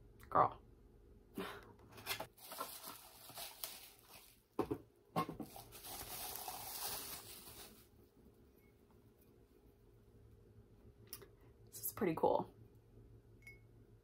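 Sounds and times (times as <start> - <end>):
plastic wrapping crinkling: 2.1 - 4.6, 5.4 - 7.9.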